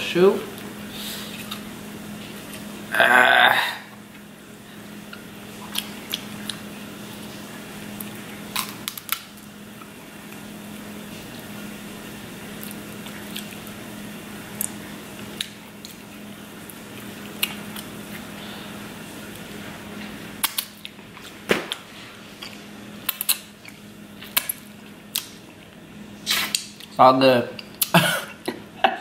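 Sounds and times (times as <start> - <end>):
wet chewing: 5.1 - 6.7, 12.6 - 13.8.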